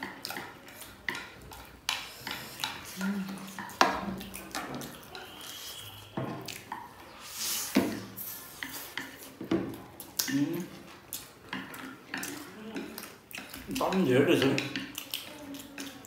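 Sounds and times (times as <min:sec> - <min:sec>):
chopsticks clicking on plates: 0:00.0 - 0:05.4, 0:08.6 - 0:16.0
noodles being slurped: 0:00.0 - 0:16.0.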